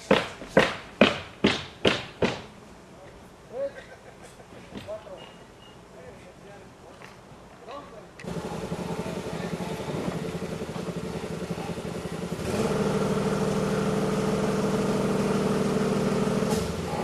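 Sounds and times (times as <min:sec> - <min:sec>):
engine running steadily: 0:08.2 - 0:17.0.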